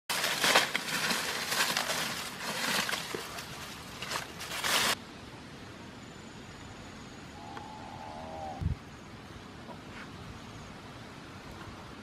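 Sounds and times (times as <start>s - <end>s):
dry leaves rustling and crackling: 0.0s - 5.0s.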